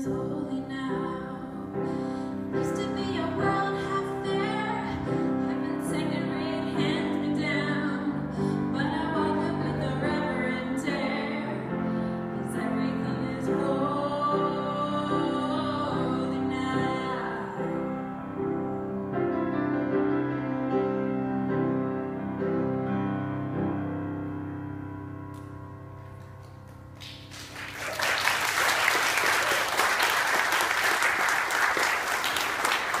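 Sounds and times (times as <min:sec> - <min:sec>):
grand piano chords: 0:00.0 - 0:28.5
audience applause: 0:27.0 - 0:33.0.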